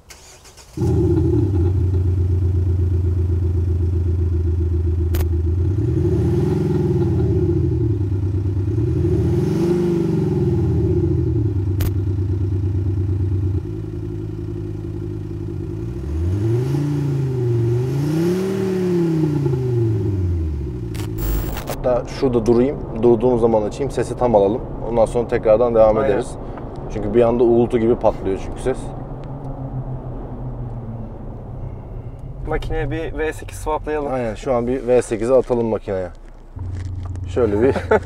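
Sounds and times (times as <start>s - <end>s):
diesel engine idling and revving: 0.0s - 38.0s
sharp clicks: 5.1s - 5.3s.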